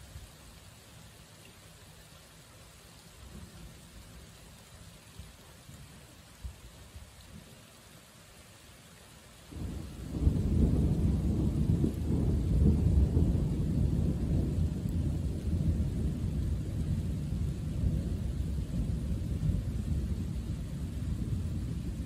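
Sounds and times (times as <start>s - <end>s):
thunder rolling: 9.6s - 22.0s.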